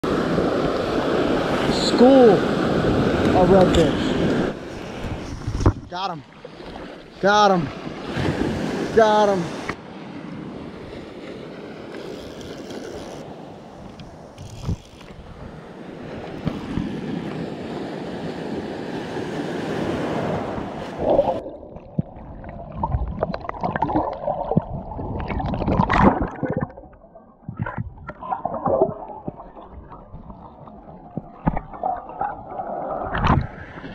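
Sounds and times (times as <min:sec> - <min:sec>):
water rushing and sloshing: 0:00.0 - 0:33.9
underwater gurgling and bubbling: 0:20.9 - 0:33.9.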